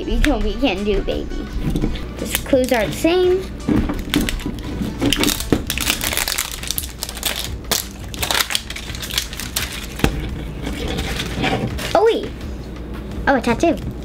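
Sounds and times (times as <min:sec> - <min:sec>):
plastic wrapping crinkling: 0:03.9 - 0:12.0.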